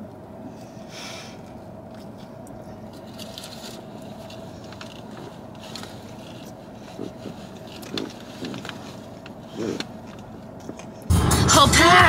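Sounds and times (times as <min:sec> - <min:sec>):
faint hum: 0:00.0 - 0:12.0
person chewing food: 0:01.8 - 0:10.8
light scrapes and crackles: 0:02.9 - 0:10.8.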